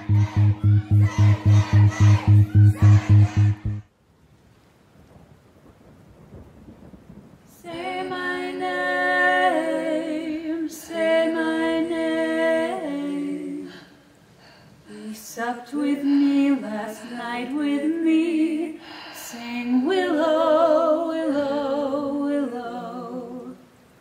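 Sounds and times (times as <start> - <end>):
wordless voices holding chords: 0.0 - 3.8
pulsing electronic music beat: 0.0 - 3.9
soft rain-like hiss: 3.8 - 24.0.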